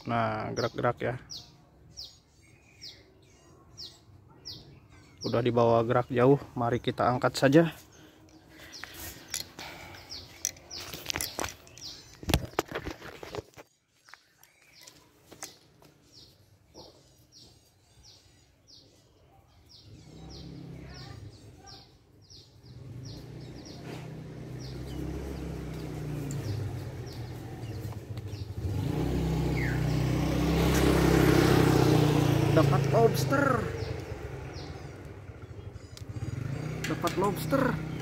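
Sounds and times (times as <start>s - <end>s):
vehicle engine hum: 22.6s - 38.0s.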